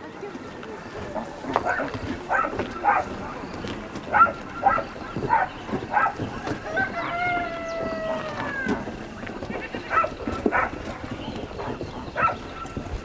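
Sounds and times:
rooster crowing: 6.6s - 8.8s.

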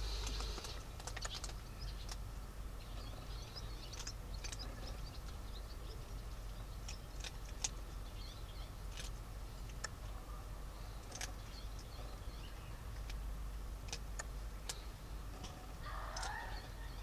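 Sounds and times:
kittens scratching and clicking: 0.0s - 2.3s, 3.8s - 5.4s, 6.0s - 10.2s, 10.8s - 12.0s, 13.8s - 16.6s
low steady hum: 0.0s - 17.0s.

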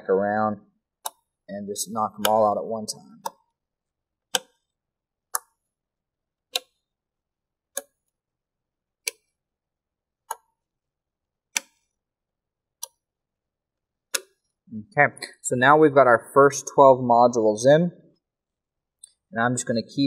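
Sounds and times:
memory module latching clicks: 14.1s - 14.4s.

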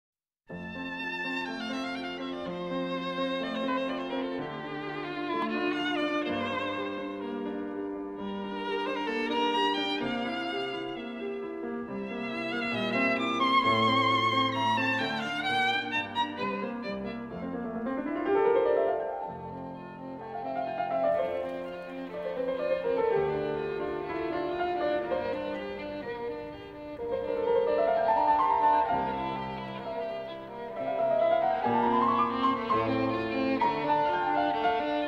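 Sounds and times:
piano: 0.5s - 35.0s
violin melody: 0.5s - 35.0s.

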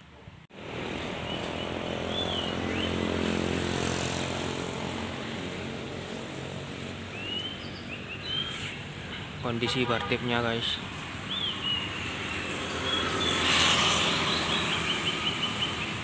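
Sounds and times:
vehicle engine humming: 0.1s - 9.7s.

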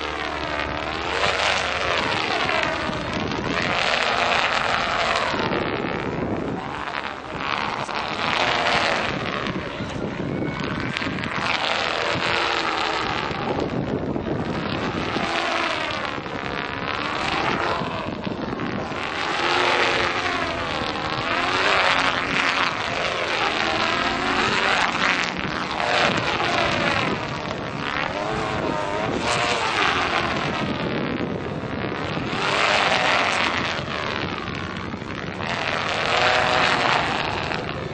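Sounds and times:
kites whooshing through wind: 0.0s - 37.9s
wind buffeting microphone: 0.0s - 37.9s.

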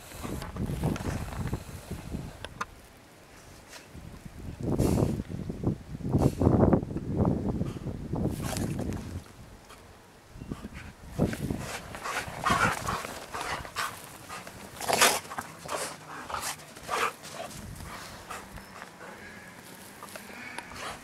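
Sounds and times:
dogs play-fighting: 10.6s - 21.0s.

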